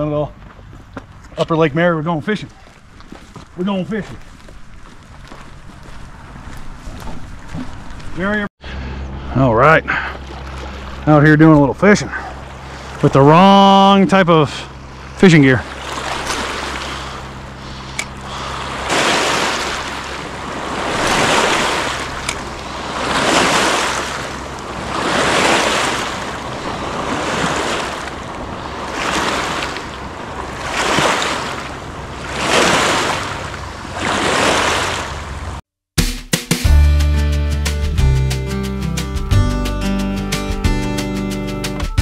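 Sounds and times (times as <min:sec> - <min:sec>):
waves washing against shore: 0:12.0 - 0:35.6.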